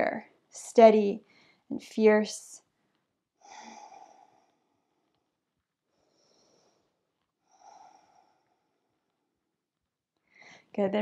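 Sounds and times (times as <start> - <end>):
woman breathing softly: 1.2 - 1.7, 3.4 - 5.2, 5.9 - 9.2, 10.2 - 10.7.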